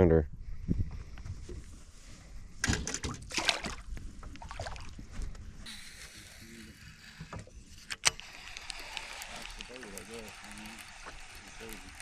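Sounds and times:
fish splashing in water: 2.8 - 5.0
steady hiss: 5.6 - 12.0.

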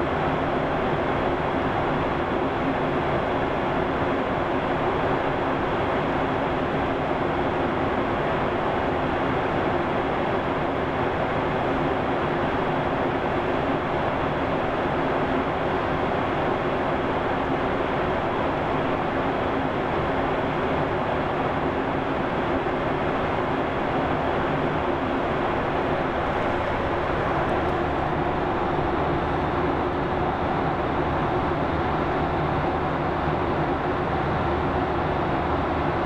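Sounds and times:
aircraft engine drone: 0.0 - 36.0.

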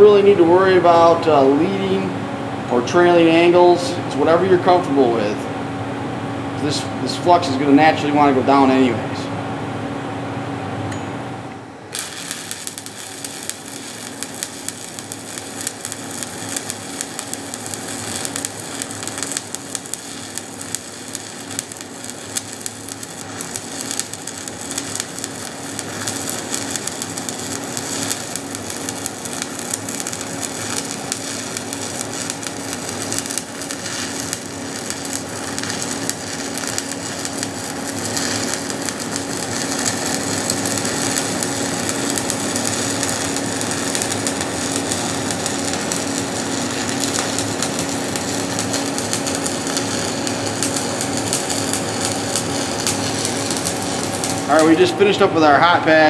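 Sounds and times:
steady hum: 0.0 - 56.0
welding arc crackling: 11.8 - 56.0.

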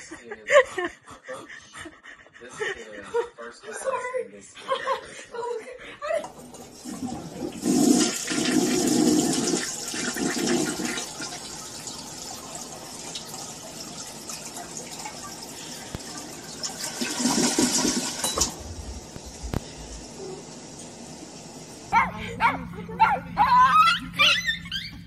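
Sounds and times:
toilet flushing: 6.2 - 22.0.

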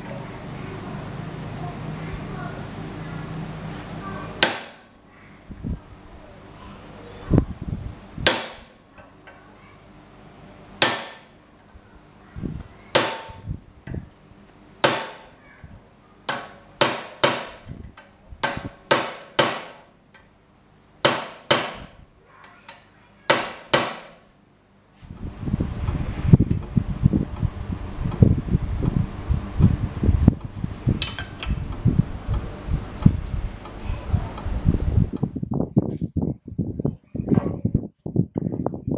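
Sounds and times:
hammer striking steel tool: 31.0 - 31.6.

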